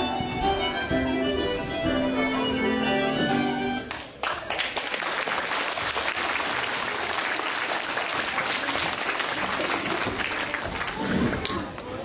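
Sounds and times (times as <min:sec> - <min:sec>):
music: 0:00.0 - 0:04.1
children applauding: 0:03.9 - 0:12.0.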